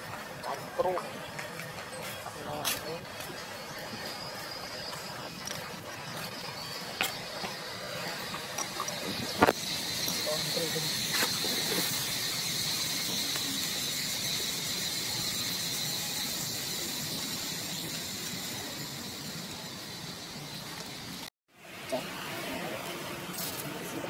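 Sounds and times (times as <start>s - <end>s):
insects buzzing: 2.4s - 21.3s
background hiss: 8.8s - 24.0s.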